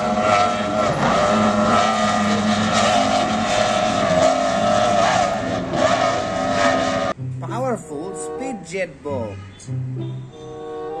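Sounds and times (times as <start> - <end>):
powerboat outboard motors: 0.0 - 8.4.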